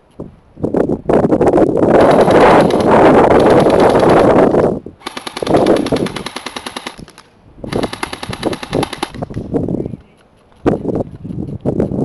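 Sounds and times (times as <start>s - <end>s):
airsoft gun firing full-auto: 2.0s - 9.3s.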